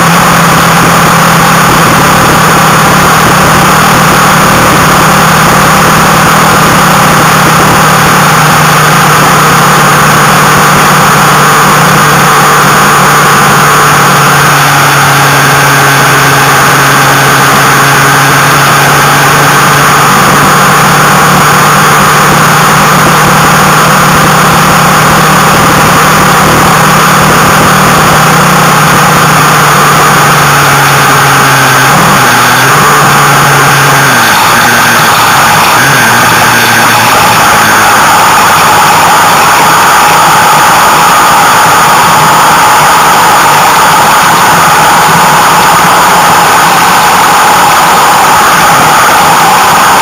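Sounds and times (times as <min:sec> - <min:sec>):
motorcycle engine cruising: 0:00.0 - 0:50.0
wind rush on microphone: 0:00.5 - 0:11.0.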